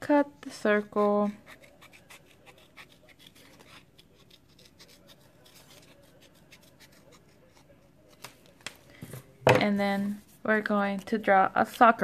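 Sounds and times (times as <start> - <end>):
scissors snipping paper: 1.0 - 8.5.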